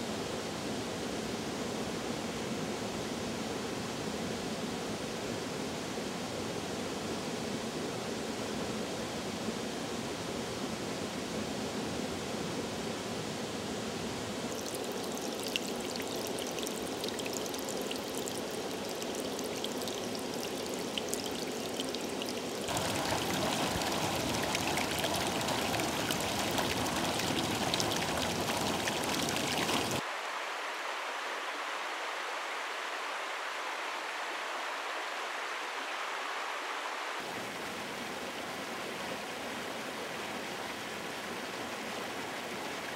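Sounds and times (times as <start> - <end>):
stream water rushing over rocks: 14.4 - 42.9.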